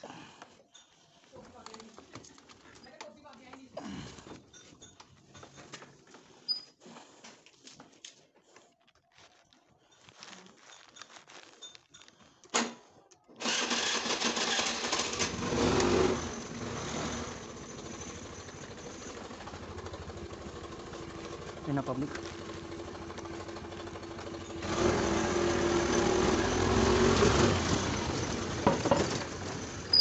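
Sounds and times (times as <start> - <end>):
faint clicks and handling noises: 0.4 - 6.3
scooter engine running: 13.4 - 30.0.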